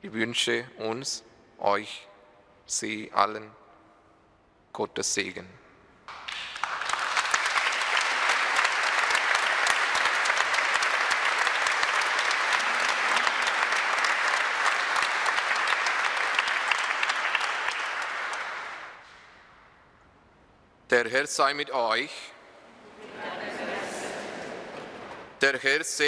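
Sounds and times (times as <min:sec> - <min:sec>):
congregation applauding: 0:06.1 - 0:19.4, 0:23.2 - 0:25.4.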